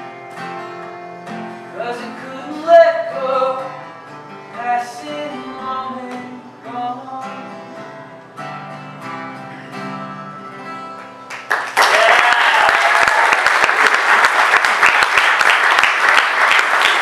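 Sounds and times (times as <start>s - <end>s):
acoustic guitar strummed slowly: 0.0s - 11.5s.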